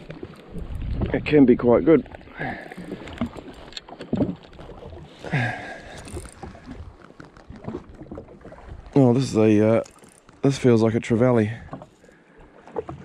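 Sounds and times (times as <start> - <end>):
waves lapping against hull: 0.0 - 13.0
wind on microphone: 0.5 - 1.7.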